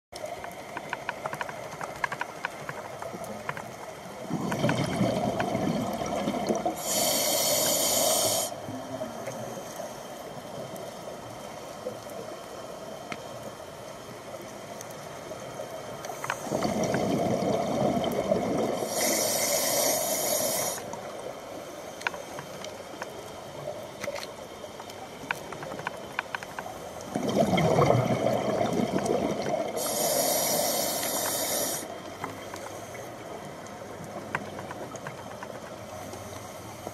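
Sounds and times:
exhaled bubbles gurgling: 3.2s - 9.4s, 16.4s - 20.9s, 27.0s - 32.1s
regulator inhale hiss: 6.7s - 8.7s, 18.8s - 22.4s, 29.7s - 33.4s.

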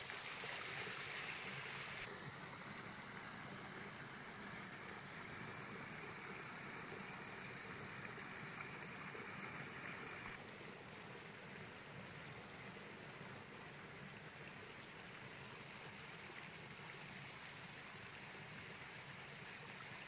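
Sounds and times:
stream water rushing over rocks: 0.0s - 10.4s.

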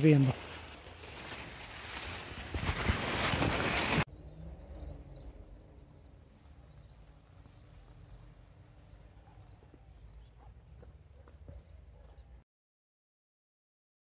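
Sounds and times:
maize leaves rustling on phone: 0.0s - 4.1s.

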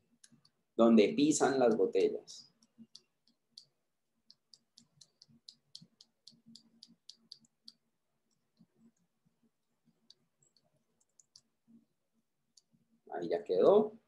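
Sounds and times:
computer mouse clicking: 0.1s - 0.6s, 1.5s - 9.1s, 9.8s - 11.6s.

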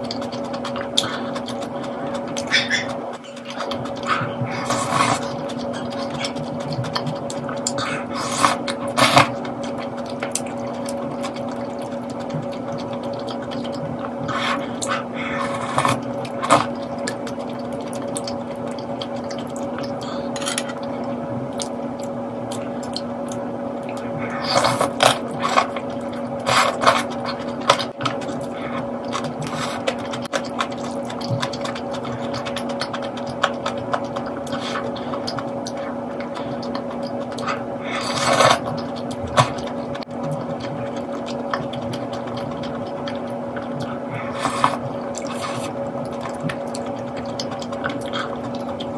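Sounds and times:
steady hum: 0.0s - 48.9s
slurping soup: 0.8s - 6.4s
chopsticks and spoon on bowl: 19.0s - 20.9s.

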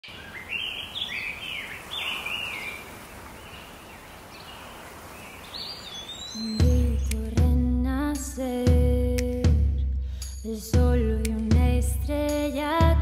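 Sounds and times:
birds calling: 0.0s - 7.4s
steady outdoor hiss: 0.0s - 13.0s.

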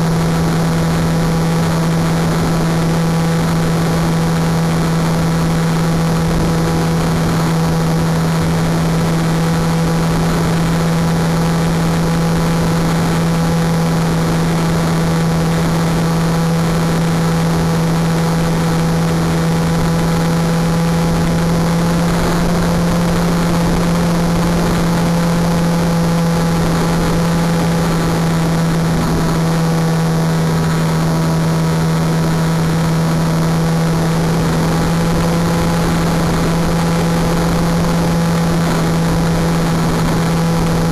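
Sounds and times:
model plane motor drone: 0.0s - 40.9s.

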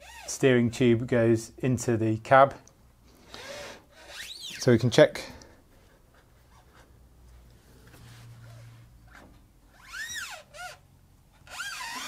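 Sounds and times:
steering tube screeching: 0.0s - 0.4s, 3.3s - 4.8s, 9.7s - 10.8s, 11.4s - 12.0s.

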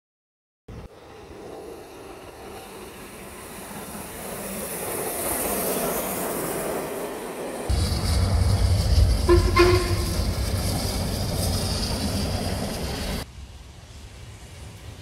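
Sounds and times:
steam locomotive passing: 0.7s - 15.0s
steam hissing: 7.6s - 15.0s.

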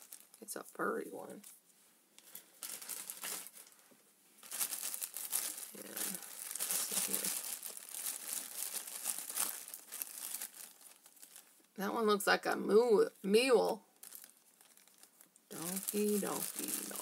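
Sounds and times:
bag crinkling and rustling: 0.0s - 0.4s, 2.2s - 11.8s, 14.0s - 17.0s.

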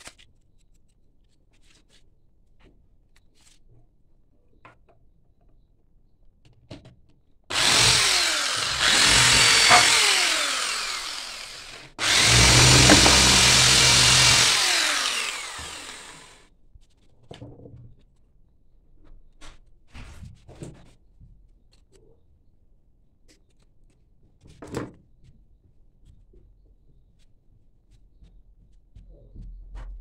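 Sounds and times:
power drill whining: 7.5s - 16.4s.

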